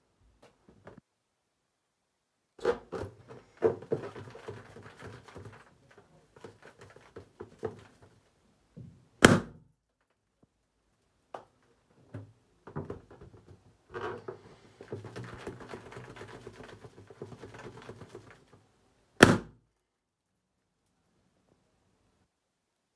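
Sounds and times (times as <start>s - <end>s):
balloons knocking against bathtub: 2.6s - 5.7s
balloons bursting: 9.2s - 9.7s, 19.2s - 19.6s.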